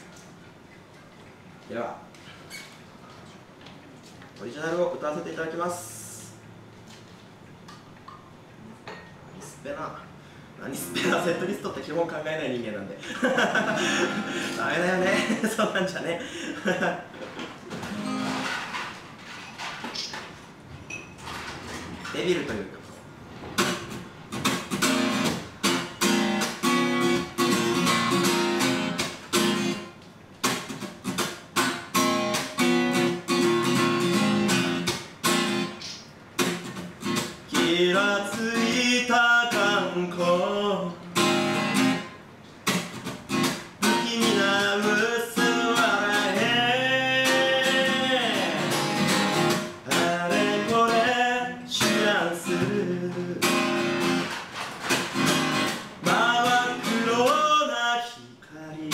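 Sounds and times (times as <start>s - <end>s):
acoustic guitar strumming: 13.3s - 15.6s, 17.7s - 20.2s, 23.4s - 57.9s
man singing: 37.5s - 41.0s, 43.8s - 48.9s, 49.7s - 53.8s, 56.0s - 58.9s.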